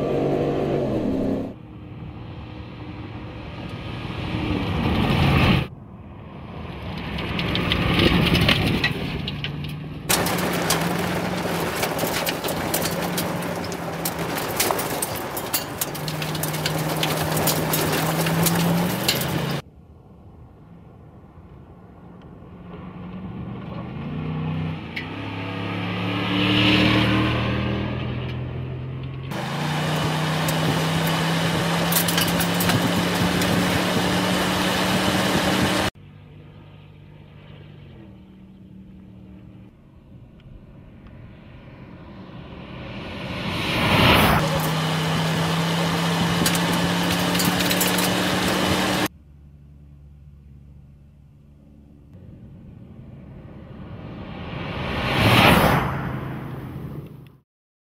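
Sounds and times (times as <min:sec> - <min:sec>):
truck engine running hard: 0:10.1 - 0:19.6, 0:29.3 - 0:39.2, 0:44.4 - 0:49.1
tyres rushing on sand and gravel: 0:10.1 - 0:19.6, 0:29.3 - 0:35.9, 0:44.0 - 0:49.1.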